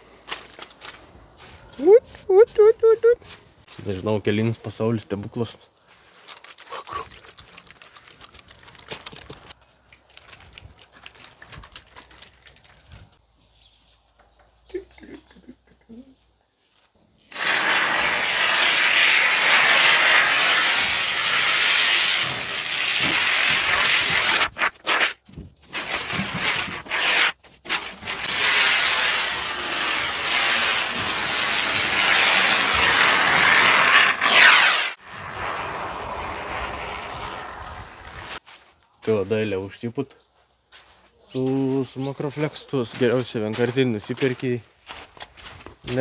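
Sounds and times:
aerosol foam can hissing: 17.3s - 25.0s, 28.1s - 38.4s.

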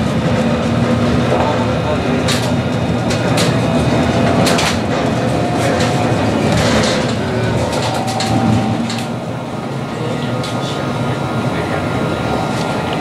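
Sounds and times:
tram wheels rumbling on rail: 0.0s - 13.0s.

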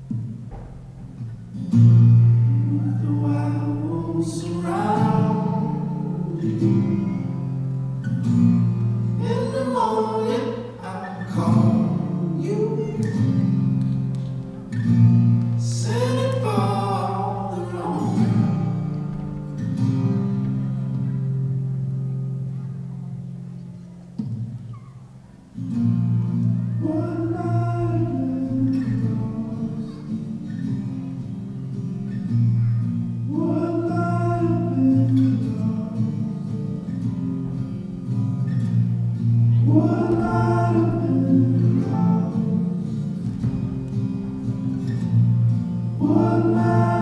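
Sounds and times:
person singing: 2.5s - 7.5s, 9.2s - 13.4s, 15.6s - 19.0s, 26.7s - 30.6s, 39.5s - 43.2s, 46.0s - 47.0s.

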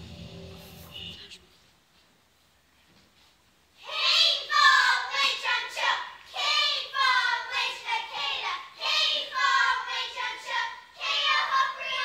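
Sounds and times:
children singing: 3.8s - 12.0s.

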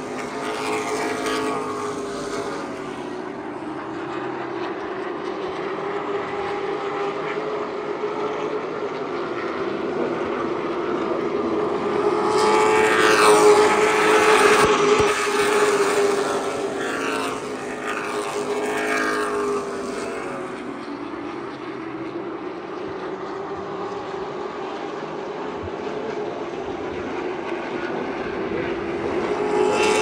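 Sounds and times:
stock car engines droning: 0.0s - 30.0s.

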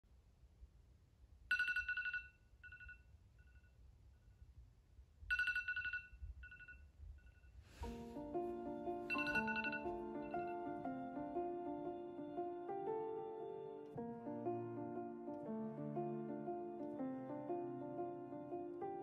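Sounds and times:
phone alarm ringtone trilling: 5.3s - 6.8s, 9.1s - 10.7s
background music: 7.8s - 19.0s.

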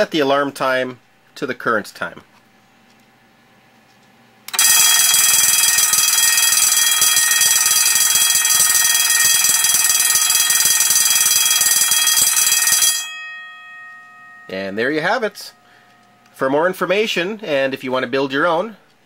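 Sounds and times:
electric alarm bell ringing: 4.5s - 17.0s.

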